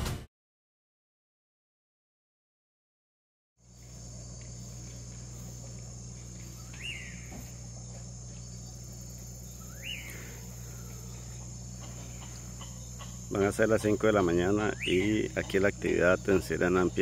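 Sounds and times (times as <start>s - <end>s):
low steady hum: 3.6s - 17.0s
night insects chirping: 3.6s - 17.0s
rising and falling whistled call: 6.6s - 7.4s, 9.5s - 11.1s.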